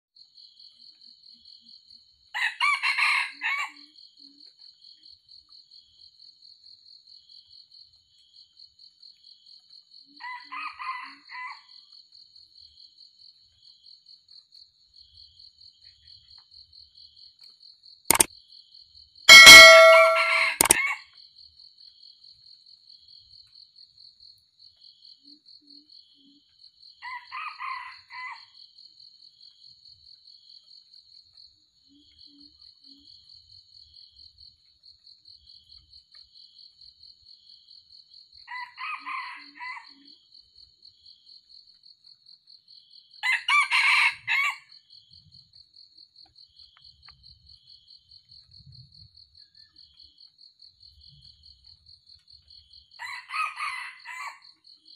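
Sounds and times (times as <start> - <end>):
rooster crowing: 2.4 - 3.8, 10.2 - 11.6, 19.3 - 21.0, 27.1 - 28.4, 38.5 - 40.0, 43.2 - 44.6, 53.0 - 54.4.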